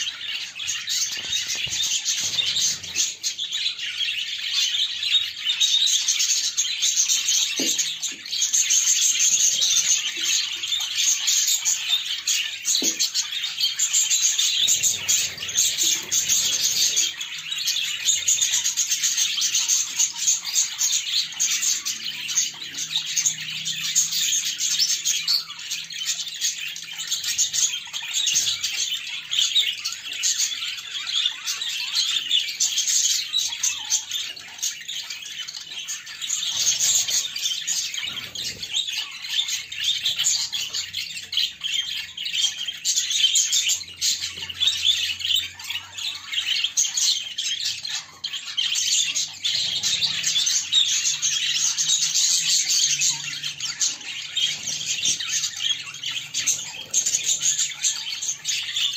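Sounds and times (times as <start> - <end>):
budgerigars chattering and chirping: 0.0 - 58.9.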